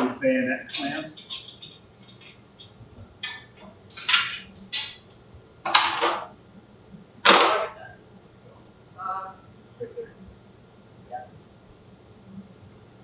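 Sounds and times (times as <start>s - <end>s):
metal clanks and scrapes: 0.8s - 2.4s.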